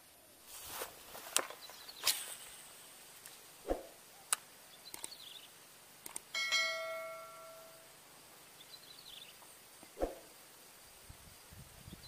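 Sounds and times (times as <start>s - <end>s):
mouse clicks: 4.3s - 5.2s, 6.0s - 6.3s
bright bell ding: 6.4s - 7.9s.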